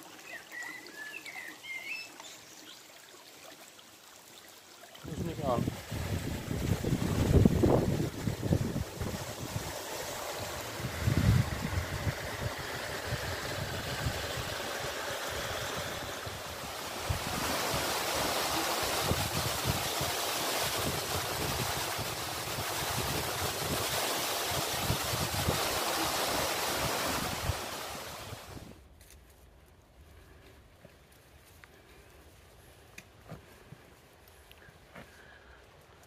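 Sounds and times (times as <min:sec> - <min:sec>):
water rushing over rock: 0:03.4 - 0:28.8
wind rumbling on microphone: 0:05.0 - 0:28.8.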